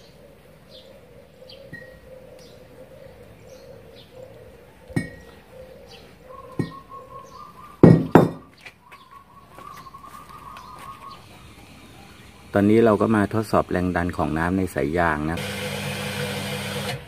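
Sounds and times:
birds chirping: 0.0s - 15.4s
anvil clanking on concrete: 7.8s - 8.5s.

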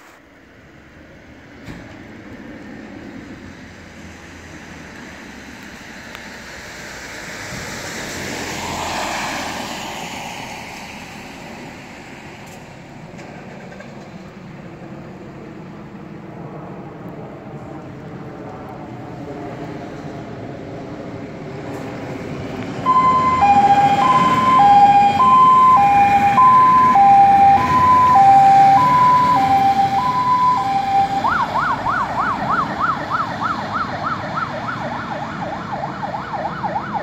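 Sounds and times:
fire engine running: 0.0s - 37.0s
two-tone hi-lo siren: 8.4s - 9.8s, 22.8s - 37.0s
fast yelping siren: 22.9s - 37.0s.

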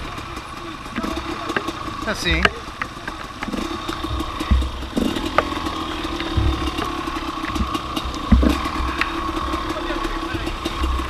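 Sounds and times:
scattered clicks: 0.0s - 11.0s
two-stroke motorbike engine running: 0.0s - 11.0s
dull thumps: 2.3s - 9.6s.

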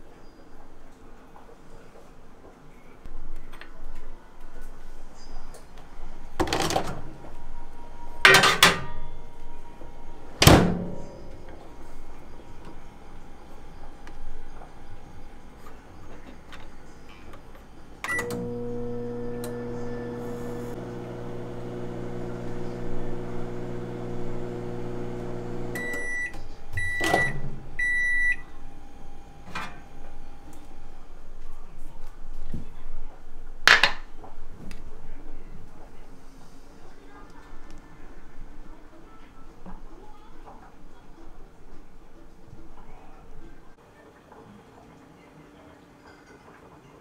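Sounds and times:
microwave oven humming: 17.8s - 31.2s
microwave beeps: 18.0s - 28.6s.

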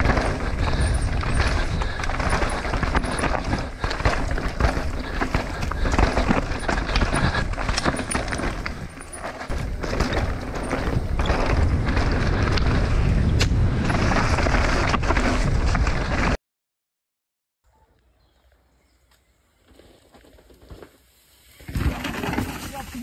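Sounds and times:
tyres crunching over dirt and stones: 0.0s - 16.3s
bike rattling with sharp knocks: 0.0s - 16.4s, 20.2s - 23.0s
wind rumbling on microphone: 0.0s - 16.4s.

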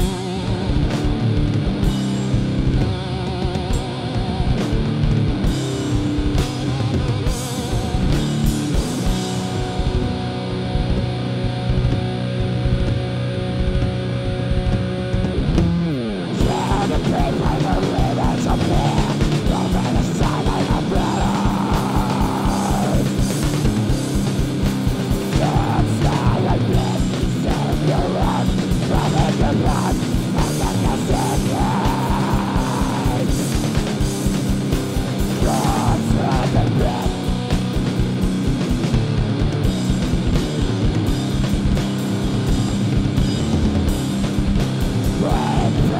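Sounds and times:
distorted electric guitars: 0.0s - 45.9s
fast drumming: 0.0s - 45.9s.

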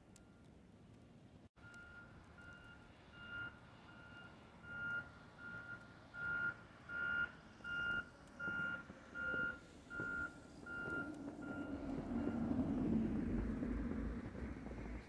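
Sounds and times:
vehicle reversing alarm beeping: 1.6s - 13.0s.

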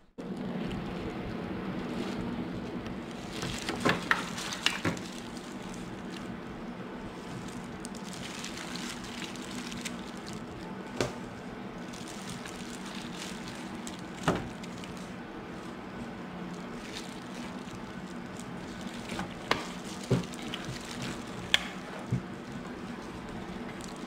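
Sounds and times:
steady low hum: 0.0s - 24.0s
crinkling of gloves and foil pan: 1.8s - 24.0s
squishing of meat in juices: 7.1s - 10.7s, 11.7s - 15.1s, 16.5s - 24.0s.

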